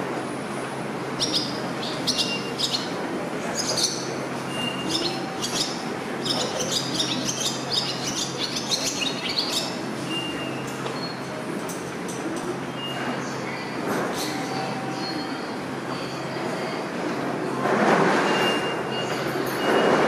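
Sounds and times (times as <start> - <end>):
swallow twittering song: 3.6 - 9.8.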